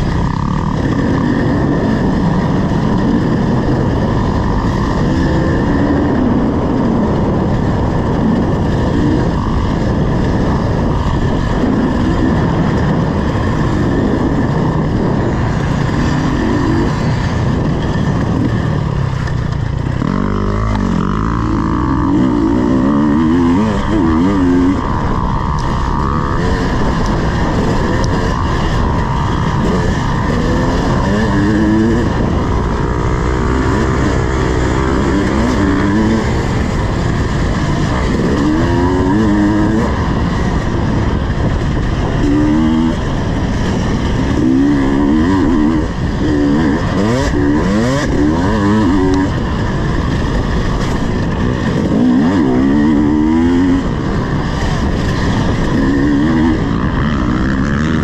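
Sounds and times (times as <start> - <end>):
dirt bike engine revving: 0.0 - 58.0
wind and riding noise: 0.0 - 58.0.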